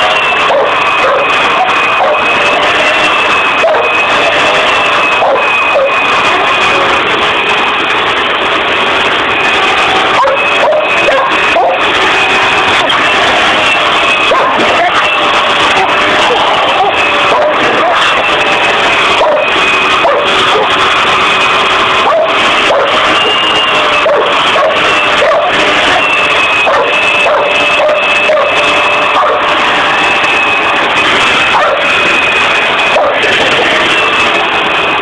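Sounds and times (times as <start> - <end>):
dogs barking and yipping: 0.0 - 7.8, 9.0 - 34.4
vacuum cleaner whining: 0.0 - 35.0.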